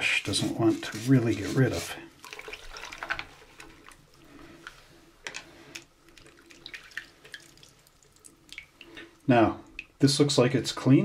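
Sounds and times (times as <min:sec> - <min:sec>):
small water splashes: 0:02.2 - 0:04.2, 0:06.0 - 0:10.0.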